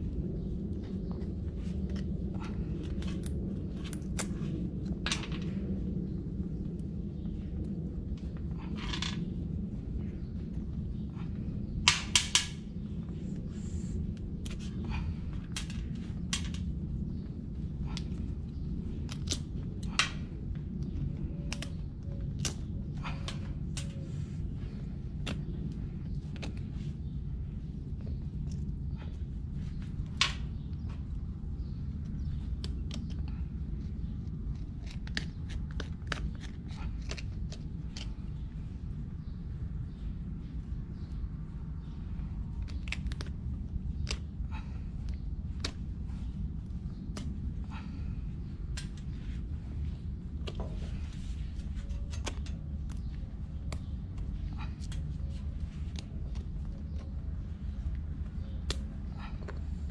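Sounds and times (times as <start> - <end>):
low rumble: 0.0 - 59.9
steady low hum: 0.0 - 59.9.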